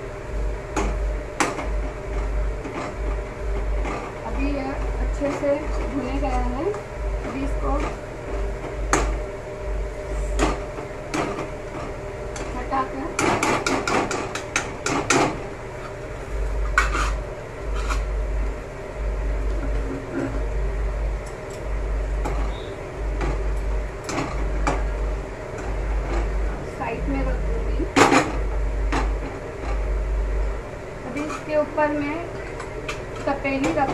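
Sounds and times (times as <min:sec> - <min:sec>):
metal spoon scraping a pan: 0:16.6 - 0:18.1, 0:31.1 - 0:31.5.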